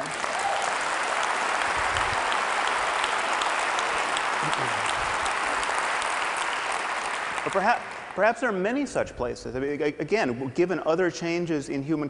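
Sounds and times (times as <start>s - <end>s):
audience applauding: 0.0s - 8.7s.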